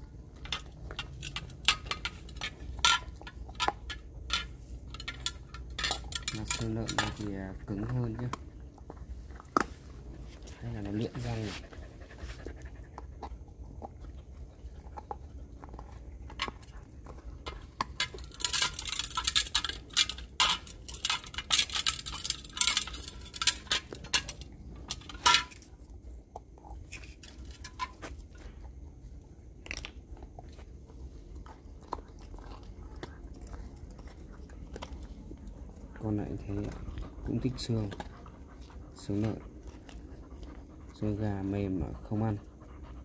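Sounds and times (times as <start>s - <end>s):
dog crunching a bone: 0.0s - 43.0s.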